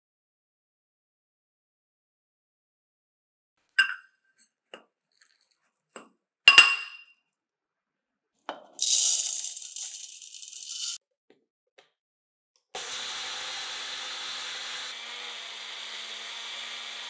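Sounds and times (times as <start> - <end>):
glass kitchenware clinking: 3.8 - 4.1, 5.2 - 7.1
dry oats poured into bowl: 8.8 - 11.0.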